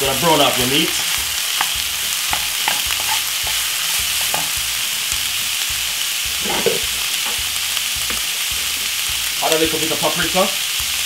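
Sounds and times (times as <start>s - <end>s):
meat sizzling in a frying pan: 0.0s - 11.0s
spoon tapping a pan: 1.0s - 5.3s.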